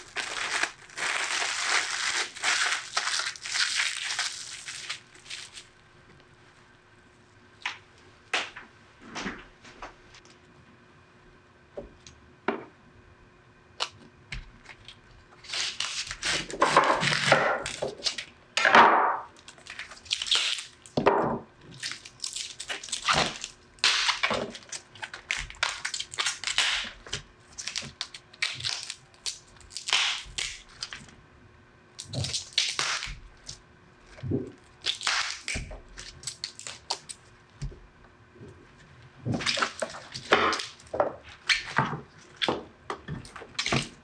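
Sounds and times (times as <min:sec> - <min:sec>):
leaves cracking and tearing: 0:00.0 - 0:05.7, 0:19.4 - 0:20.9, 0:21.8 - 0:27.0, 0:34.8 - 0:37.2.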